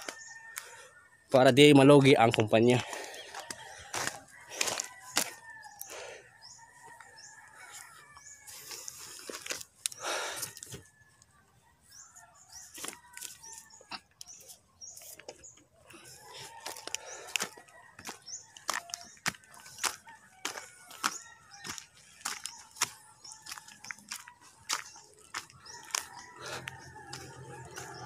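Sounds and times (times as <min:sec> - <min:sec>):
birds chirping: 0:00.0 - 0:28.0
crunching rustling handling noise: 0:08.4 - 0:10.8.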